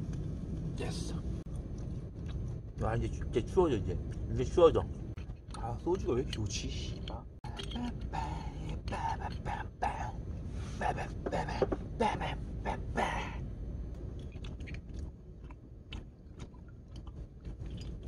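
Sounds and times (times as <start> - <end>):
man chewing: 1.5 - 2.6, 14.1 - 18.0.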